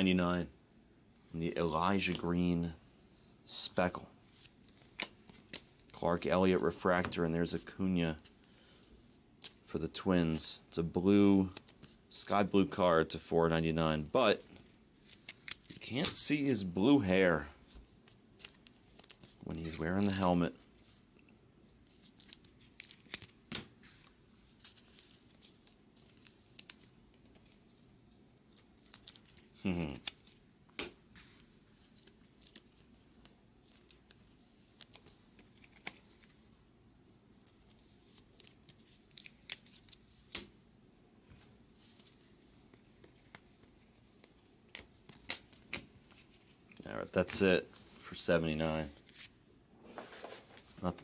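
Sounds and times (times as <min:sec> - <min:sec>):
cards clicking and rustling: 0:04.4 - 0:07.2, 0:11.4 - 0:12.0, 0:15.0 - 0:16.9, 0:17.7 - 0:20.9, 0:21.9 - 0:27.6, 0:28.5 - 0:36.4, 0:37.4 - 0:40.5, 0:41.9 - 0:47.5.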